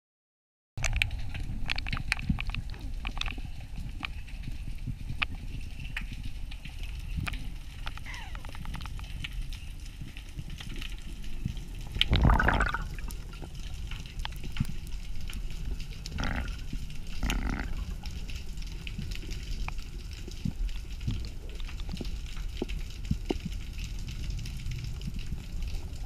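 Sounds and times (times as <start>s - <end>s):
low underwater rumble: 0.8s - 26.0s
underwater crackle of clicks: 0.8s - 26.0s
bubbles gurgling: 11.8s - 13.6s, 16.0s - 18.3s.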